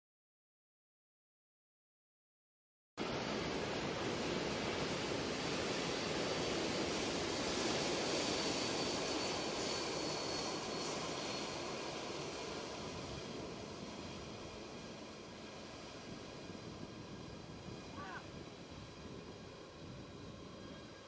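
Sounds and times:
jet engines roaring with high whine: 3.0s - 21.0s.

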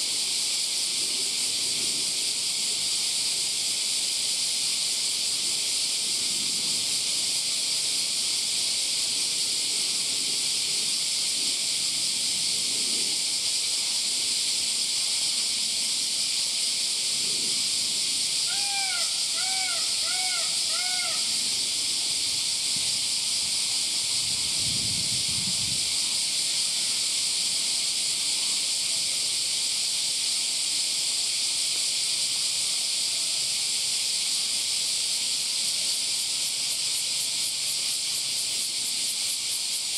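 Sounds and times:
cicada chorus drone: 0.0s - 39.9s
bird calls: 18.5s - 21.3s.

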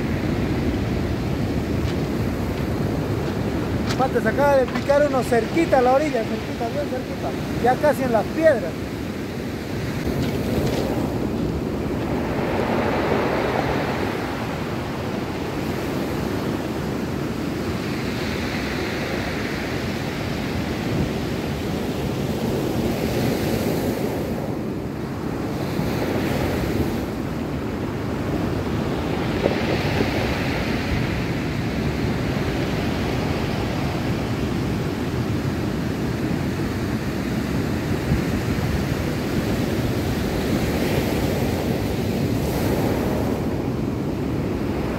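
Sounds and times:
wind on microphone: 0.0s - 44.9s
surf breaking on pebble beach: 0.1s - 14.8s.

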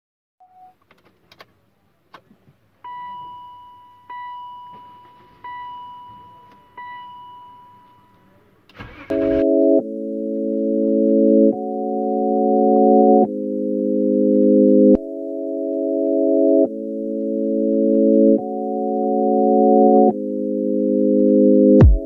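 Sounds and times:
dashboard warning chime dinging: 2.8s - 13.3s
engine cranking and starting: 8.7s - 9.6s
loud organ-like music: 9.1s - 22.0s.

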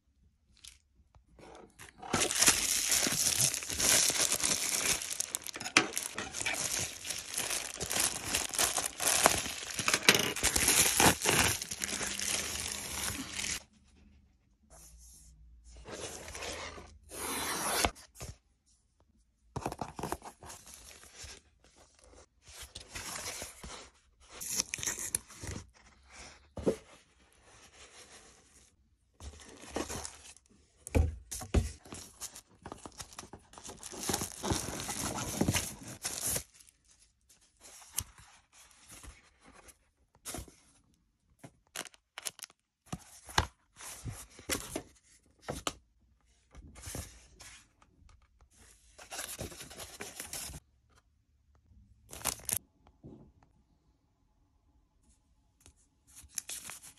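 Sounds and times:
packaging tearing and rustling: 1.9s - 13.6s, 32.7s - 36.7s.

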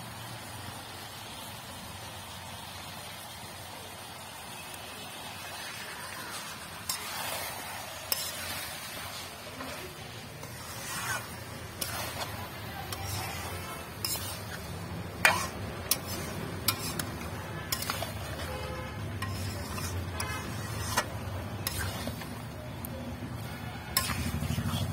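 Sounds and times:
metal spoon clinking and scraping pan: 6.4s - 22.5s, 23.4s - 24.9s.

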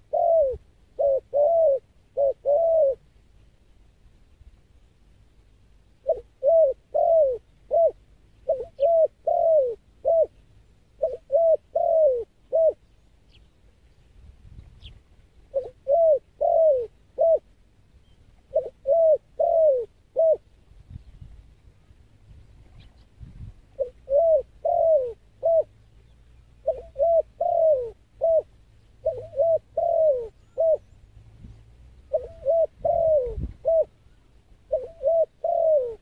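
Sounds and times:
dove cooing: 0.0s - 3.0s, 6.0s - 10.4s, 11.0s - 12.9s, 15.5s - 17.5s, 18.4s - 20.5s, 23.7s - 25.8s, 26.6s - 31.0s, 32.0s - 36.0s.

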